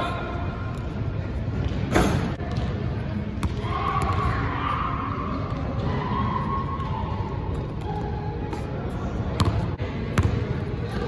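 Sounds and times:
basketball bang in gym hall: 0:01.7 - 0:04.6, 0:09.3 - 0:10.6.

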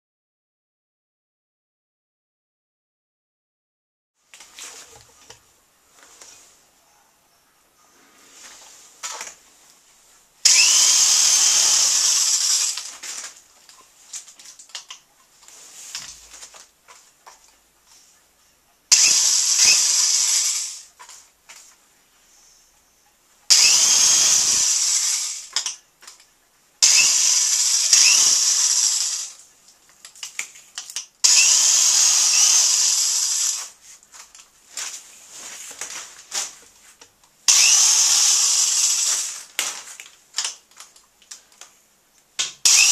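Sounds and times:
power drill whining: 0:10.5 - 0:13.0, 0:18.9 - 0:20.9, 0:23.5 - 0:25.7, 0:26.8 - 0:29.4, 0:31.2 - 0:33.8, 0:37.5 - 0:39.5, 0:42.6 - 0:42.9.

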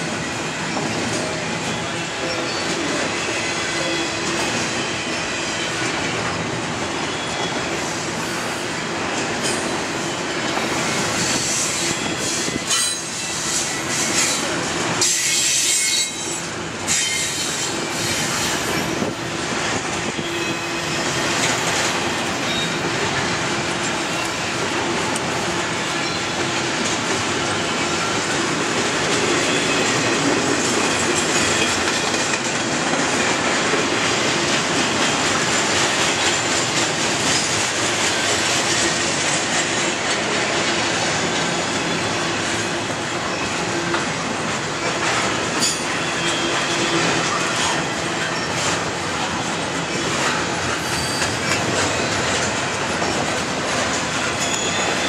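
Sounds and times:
train wheels clattering on rail: 0:00.0 - 0:55.0
high wheel squeal: 0:09.4 - 0:19.1, 0:20.1 - 0:22.9, 0:50.7 - 0:52.2, 0:54.1 - 0:55.0.

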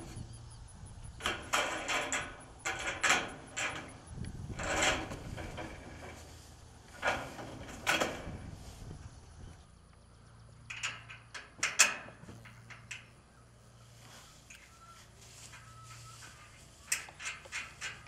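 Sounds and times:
metal panel scraping on rail: 0:01.2 - 0:09.5, 0:13.9 - 0:18.0.

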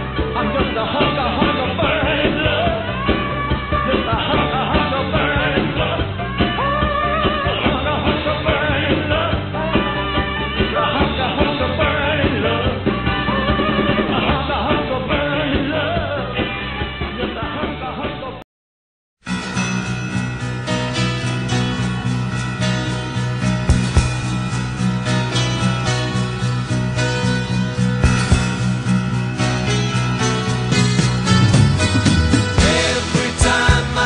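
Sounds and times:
singer over a band: 0:32.4 - 0:34.0.

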